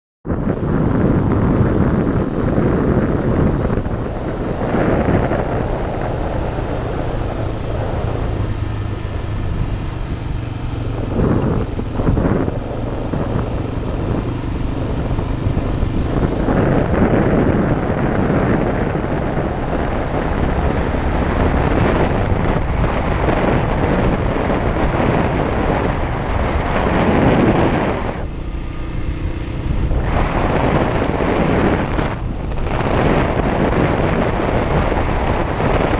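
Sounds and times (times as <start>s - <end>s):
wind noise on microphone: 0.2s - 35.9s
motorcycle engine running: 0.3s - 35.9s.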